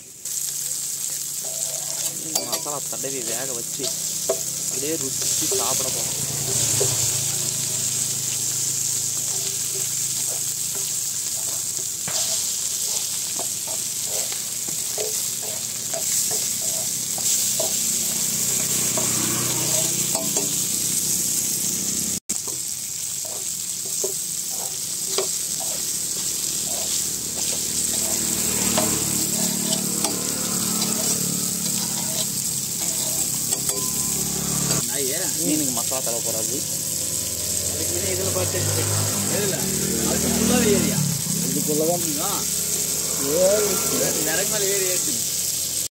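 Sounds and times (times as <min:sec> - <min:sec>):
fish sizzling in oil: 0:00.0 - 0:45.9
metal spatula scraping pan: 0:01.1 - 0:07.3, 0:08.6 - 0:21.0, 0:23.2 - 0:34.8.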